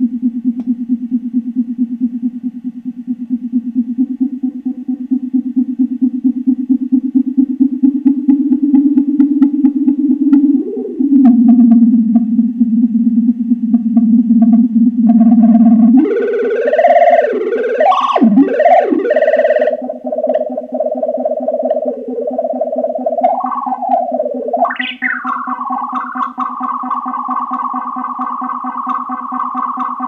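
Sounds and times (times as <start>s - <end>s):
synthesizer low drone: 0.0s - 30.0s
synthesizer tone sweeping in pitch: 7.8s - 30.0s.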